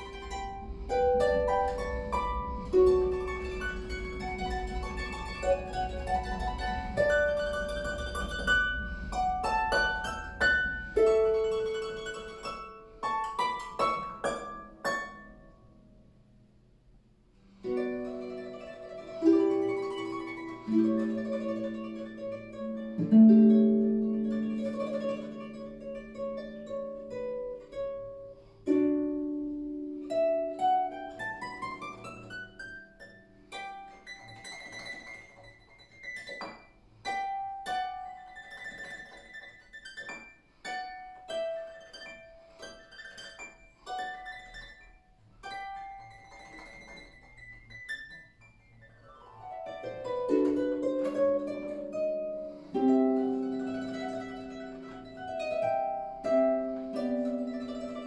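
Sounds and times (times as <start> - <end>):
harp playing: 0.0 - 16.6, 17.5 - 58.0.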